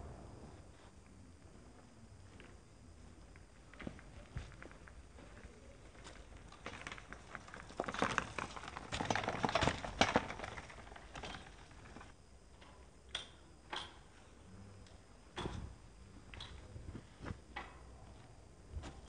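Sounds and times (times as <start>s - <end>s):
bicycle tyres crackling on dirt: 3.3s - 12.2s.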